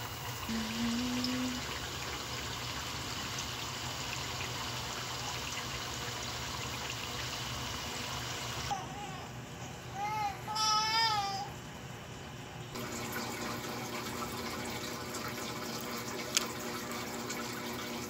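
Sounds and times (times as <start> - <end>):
oil bubbling and sizzling: 0.0 - 8.7, 12.8 - 18.0.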